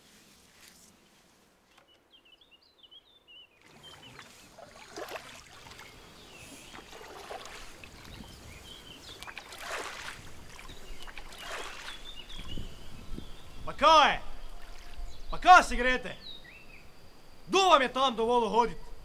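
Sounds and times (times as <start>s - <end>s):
paddles splashing through water: 3.6s - 13.0s, 14.5s - 15.1s.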